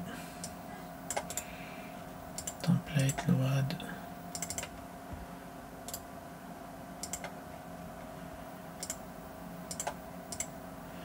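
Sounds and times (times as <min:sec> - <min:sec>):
faint electrical hum: 0:00.0 - 0:11.0
computer mouse clicking: 0:00.4 - 0:01.5, 0:02.4 - 0:03.2, 0:04.3 - 0:04.8, 0:07.0 - 0:07.4, 0:08.8 - 0:09.0, 0:09.7 - 0:10.5.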